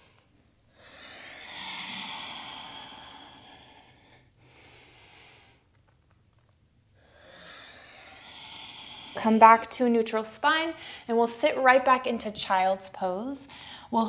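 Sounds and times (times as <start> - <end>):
woman breathing slowly: 0.0 - 5.8, 6.9 - 9.7, 10.7 - 11.2, 13.4 - 14.0.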